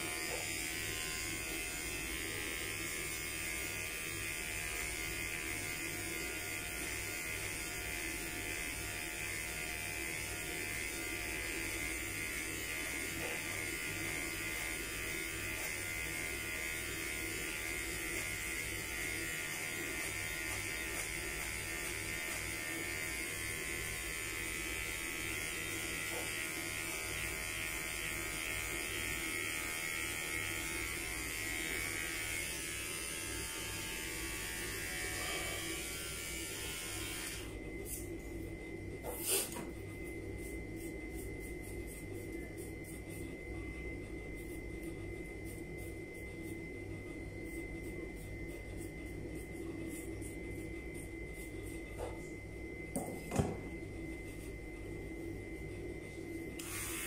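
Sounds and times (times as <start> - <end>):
electric hair clippers buzzing: 0.0 - 38.1, 56.4 - 57.0.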